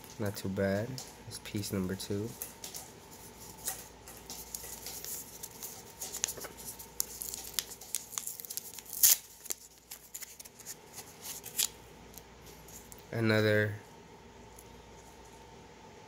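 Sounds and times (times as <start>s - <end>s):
paper rustling and crackling: 1.0s - 11.8s.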